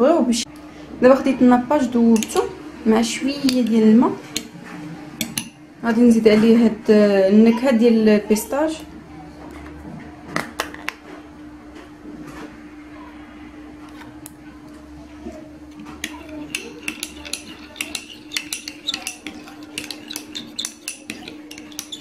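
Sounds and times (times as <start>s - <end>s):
teaspoon clinking against glass bowl: 16.0s - 22.0s.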